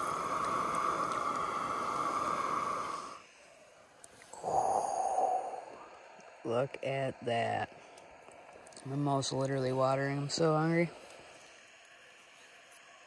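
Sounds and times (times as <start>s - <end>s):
fish sizzling in oil: 0.0s - 3.3s
short breathy rush of air: 0.0s - 6.4s.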